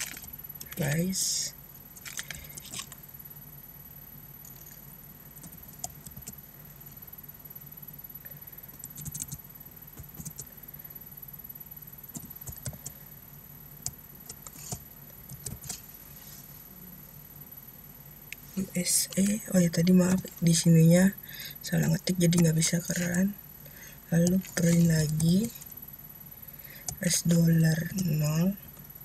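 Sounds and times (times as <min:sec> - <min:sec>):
low steady hum: 0:00.0 - 0:29.0
computer keyboard keystrokes: 0:05.4 - 0:06.4, 0:08.7 - 0:09.4, 0:10.0 - 0:10.5, 0:12.1 - 0:13.0, 0:13.8 - 0:15.8, 0:26.8 - 0:27.2.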